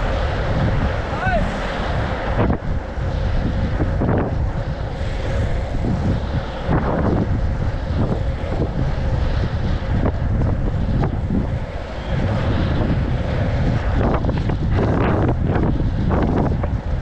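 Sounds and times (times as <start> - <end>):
wind buffeting microphone: 0.0 - 17.0
skate wheels rolling on asphalt: 4.9 - 9.2.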